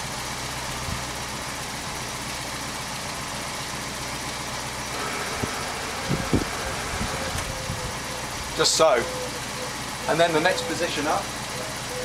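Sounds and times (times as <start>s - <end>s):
car engine idling: 0.0s - 12.0s
car suspension raising: 4.9s - 9.5s.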